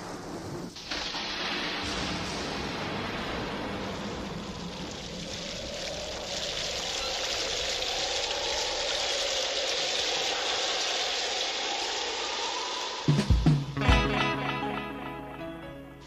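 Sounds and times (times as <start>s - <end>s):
steady rushing noise: 0.0s - 13.8s
music: 13.1s - 16.0s.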